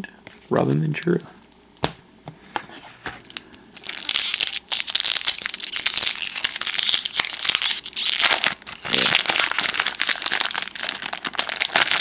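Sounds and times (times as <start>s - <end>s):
plastic wrapper crinkling: 3.2s - 12.0s.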